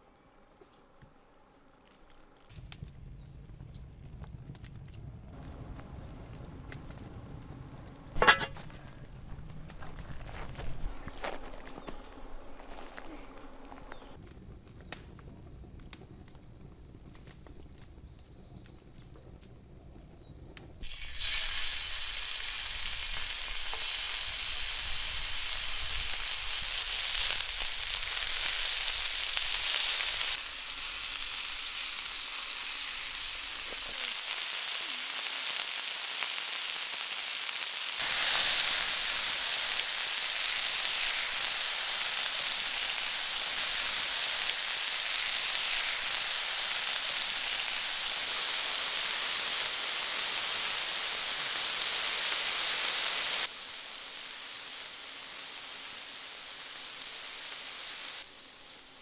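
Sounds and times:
meat sizzling in hot oil: 20.8 - 58.4.

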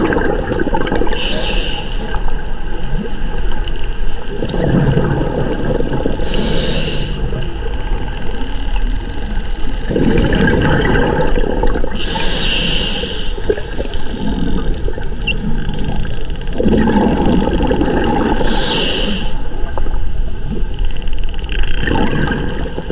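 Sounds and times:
bubbling exhalations: 0.0 - 1.5, 4.4 - 7.4, 9.9 - 19.8, 21.6 - 22.9
hissing inhalation: 1.2 - 2.1, 6.2 - 7.3, 12.0 - 14.6, 18.4 - 19.6.

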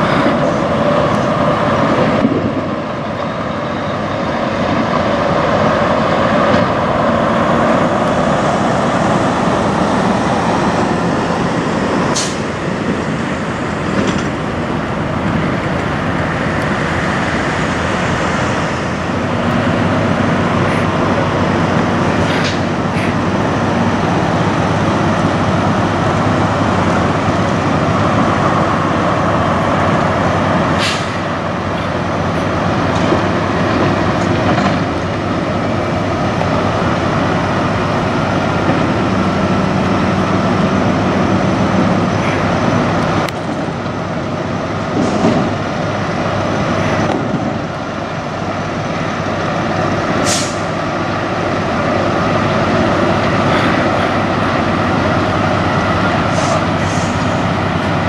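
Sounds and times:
truck diesel engine running: 0.0 - 58.0
sharp air hisses: 12.1 - 12.5, 30.8 - 31.2, 50.2 - 50.7.

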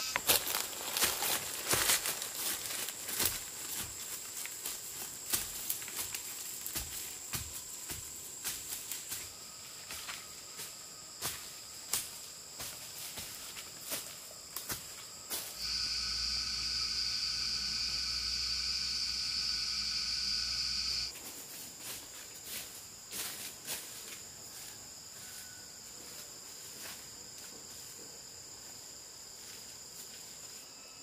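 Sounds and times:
loud high insect buzz: 0.0 - 3.9, 8.4 - 21.2
footsteps crunching on dry leaves: 0.0 - 16.0, 21.1 - 24.6
high insect drone: 0.0 - 31.0.

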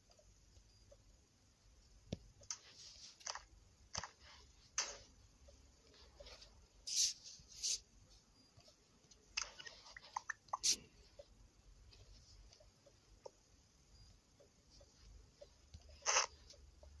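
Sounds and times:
small clicks: 2.1 - 4.2.

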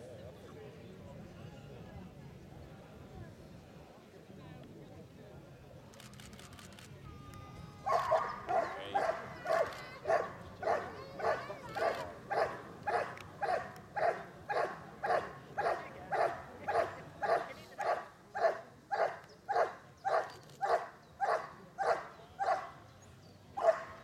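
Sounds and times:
dog barking: 7.9 - 22.7, 23.6 - 24.0.

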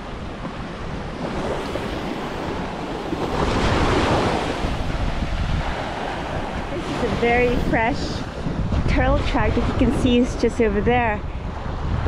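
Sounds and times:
surf washing on a beach: 0.0 - 12.0
wind buffeting microphone: 0.0 - 12.0.

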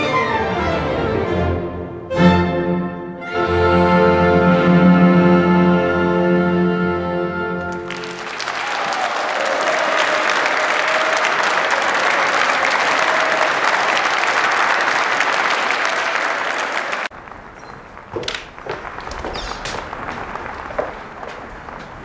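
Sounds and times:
audience applauding loudly: 7.6 - 22.0.

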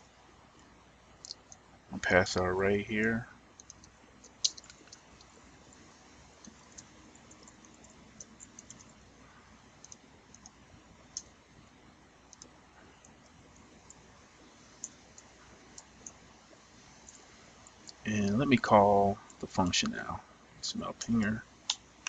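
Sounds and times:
keyboard key clicks: 3.6 - 5.0.

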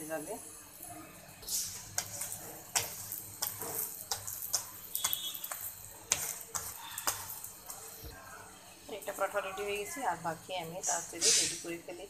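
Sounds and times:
oil sizzling on griddle: 0.0 - 12.0
metal spatula scraping and tapping: 1.4 - 8.2.

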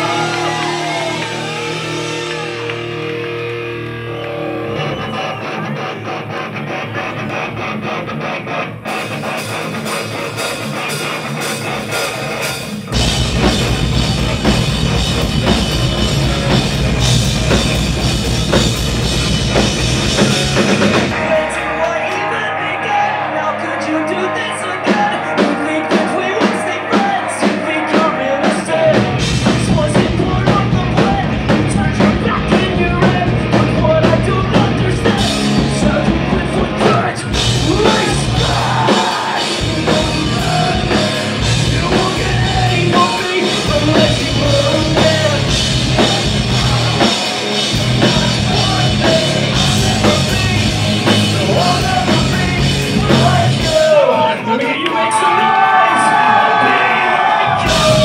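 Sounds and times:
drum kit: 0.0 - 22.3, 24.6 - 58.0
bass guitar: 0.0 - 58.0
electric guitars: 0.0 - 58.0
person singing: 20.0 - 58.0.

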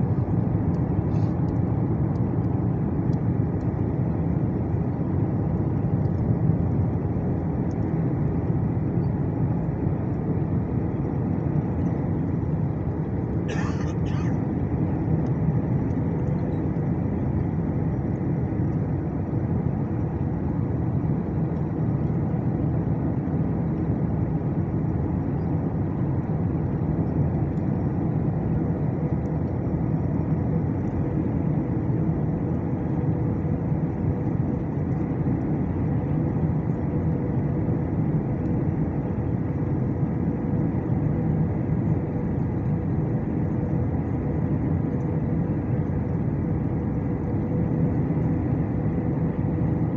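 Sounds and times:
airplane cabin low rumble: 0.0 - 49.9
faint steady hum: 0.0 - 49.9.

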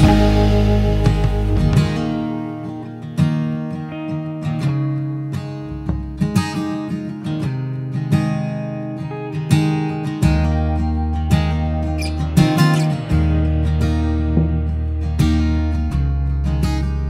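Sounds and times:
bass line: 0.0 - 2.5, 5.6 - 6.4, 10.2 - 17.0
acoustic guitar strumming: 0.0 - 17.0.

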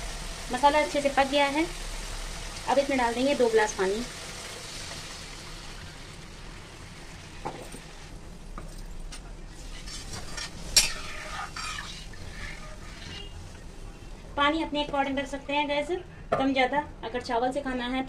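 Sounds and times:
spices sizzling in a pan: 0.0 - 8.6, 9.4 - 15.4
spoon scraping metal pan: 9.6 - 13.6.

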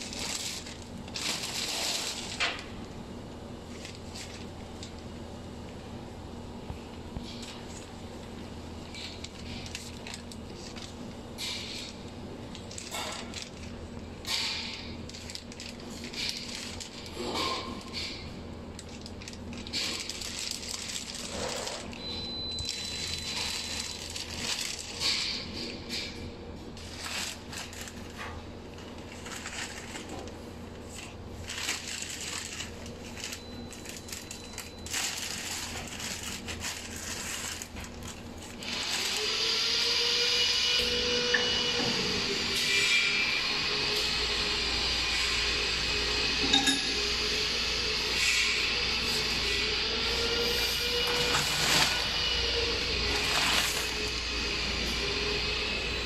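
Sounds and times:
plastic film crinkling: 0.0 - 2.7, 8.9 - 18.1, 18.7 - 22.0, 22.6 - 25.8, 26.8 - 39.3, 50.0 - 54.4.

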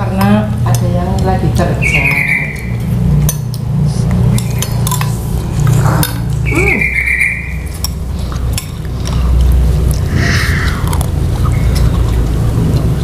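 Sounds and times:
spoons clinking against bowls: 0.0 - 3.6, 4.3 - 6.9, 7.5 - 9.2
low machine rumble: 0.0 - 13.0.

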